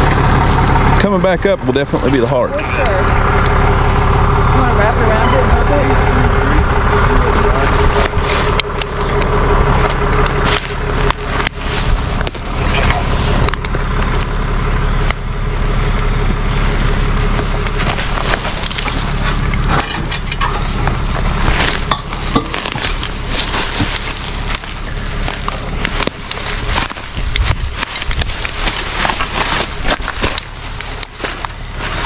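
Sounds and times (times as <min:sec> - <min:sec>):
branches crunching underfoot: 0:00.0 - 0:01.1, 0:01.9 - 0:32.0
low engine hum: 0:00.0 - 0:32.0.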